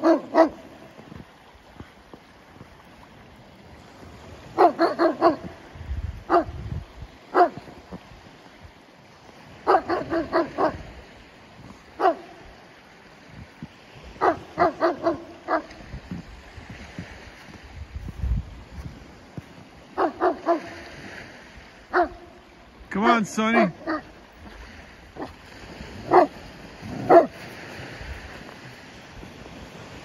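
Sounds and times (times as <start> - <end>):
dog barking: 0.0 - 0.8, 4.5 - 5.6, 6.3 - 6.6, 7.3 - 7.7, 9.6 - 10.9, 12.0 - 12.4, 14.2 - 15.8, 19.9 - 20.8, 21.9 - 22.4, 23.4 - 24.2, 25.2 - 25.4, 26.0 - 27.4.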